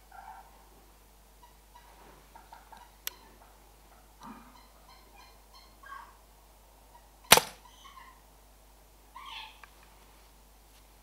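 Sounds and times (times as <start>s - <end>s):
air rifle shot: 7.3s - 7.6s.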